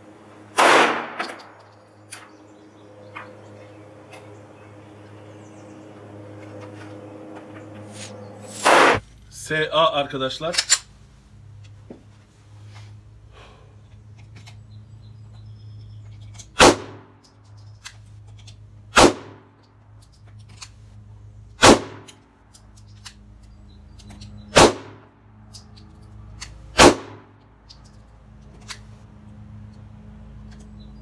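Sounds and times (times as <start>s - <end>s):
pistol shots: 0.5s - 1.3s, 16.6s - 17.1s, 18.9s - 19.4s, 21.6s - 22.1s, 24.5s - 25.0s, 26.8s - 27.3s.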